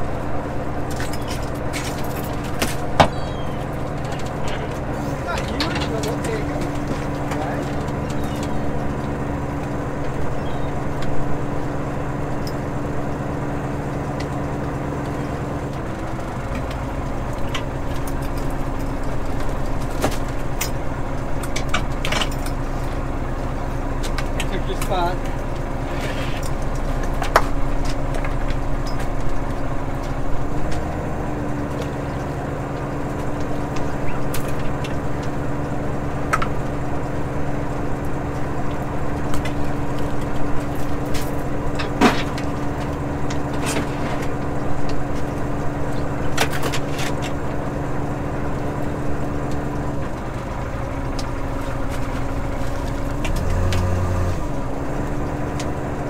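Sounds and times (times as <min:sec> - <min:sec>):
boat engine and hydraulic hauler: 0:00.0 - 0:56.0
gear knocking against rail: 0:00.8 - 0:13.0.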